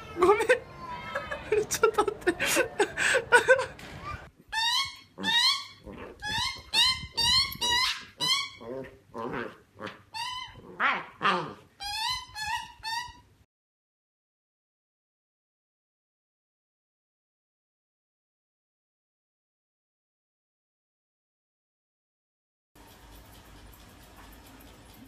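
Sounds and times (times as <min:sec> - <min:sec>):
puppy yipping: 0:04.0 - 0:08.6, 0:09.8 - 0:13.3.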